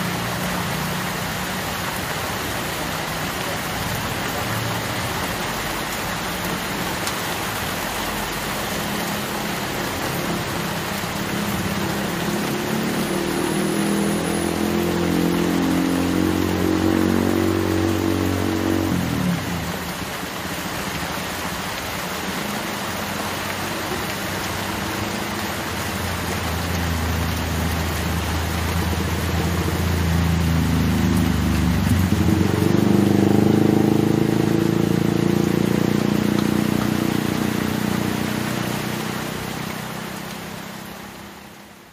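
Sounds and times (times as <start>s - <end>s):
heavy rain pouring: 0.0s - 41.9s
trucks diesel engine drone: 7.9s - 20.2s.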